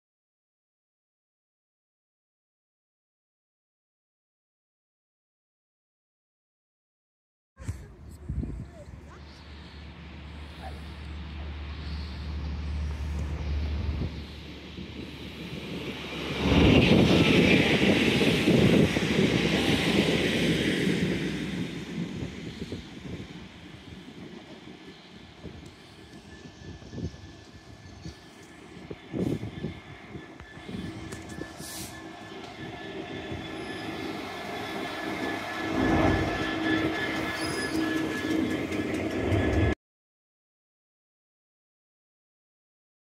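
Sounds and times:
wind buffeting microphone: 0:07.6 - 0:09.3, 0:13.0 - 0:39.6
diesel locomotive rumble: 0:07.7 - 0:39.8
train wheels squealing: 0:09.2 - 0:39.8.

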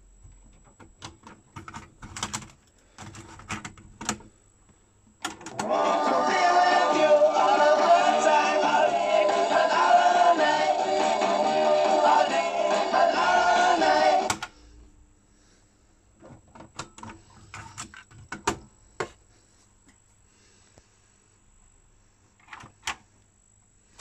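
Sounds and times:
music from cassette deck: 0:05.2 - 0:14.6.

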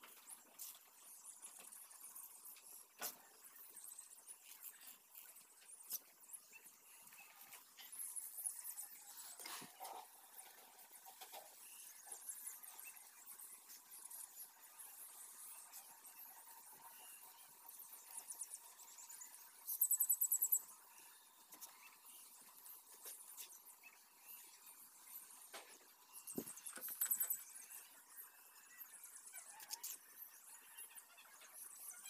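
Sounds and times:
small animal chirping: 0:16.9 - 0:24.5.

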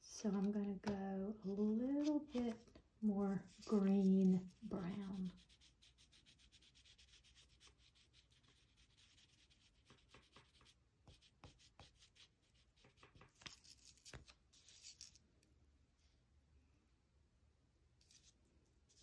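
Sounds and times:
oil pastel rubbing on cardboard: 0:03.3 - 0:13.5.

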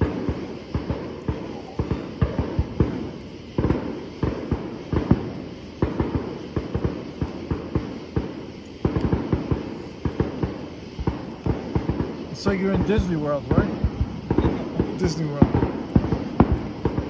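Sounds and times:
distant fireworks booming: 0:00.0 - 0:17.0.

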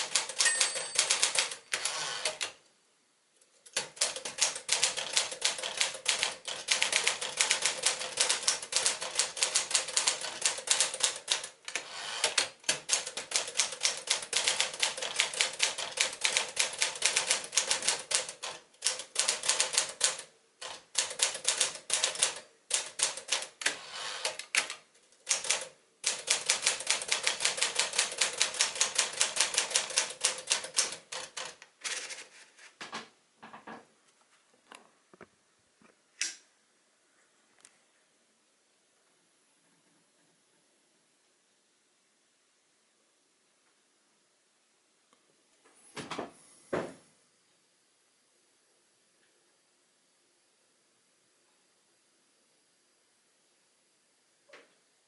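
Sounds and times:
manual typewriter typing: 0:00.0 - 0:02.6, 0:03.6 - 0:32.3.

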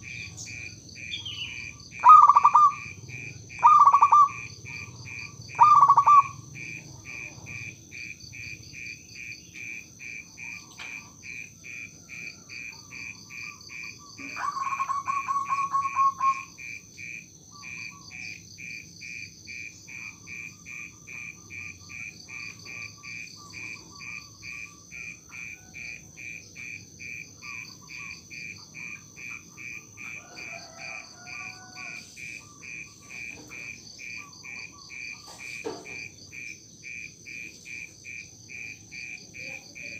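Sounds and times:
dove trilled coos: 0:00.0 - 0:39.9
insects chirping: 0:00.0 - 0:39.9.

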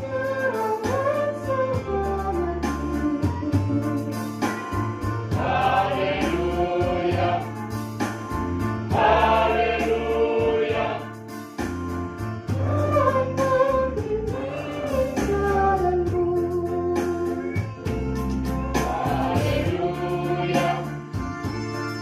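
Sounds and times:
mixed choir singing: 0:05.3 - 0:07.6, 0:08.9 - 0:11.2, 0:14.2 - 0:15.6, 0:18.8 - 0:21.0.

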